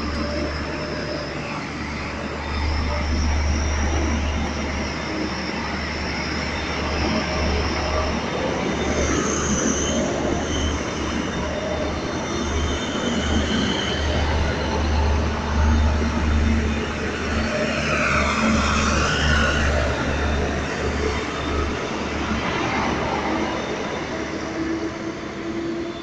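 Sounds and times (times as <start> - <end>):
faint high squeals: 0.0 - 26.0
train wheels rumbling on rails: 0.0 - 26.0.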